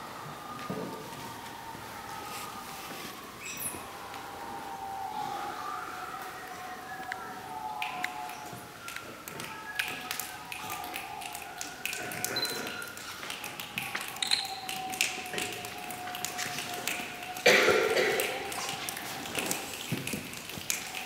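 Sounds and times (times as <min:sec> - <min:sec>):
faint held vocal tones: 0:00.0 - 0:21.0
finger snaps and taps: 0:07.8 - 0:17.5.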